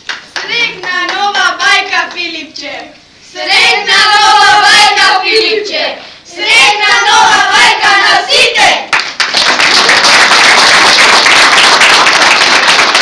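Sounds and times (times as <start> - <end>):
people clapping: 0.0 - 1.3, 6.8 - 7.7, 8.9 - 13.0.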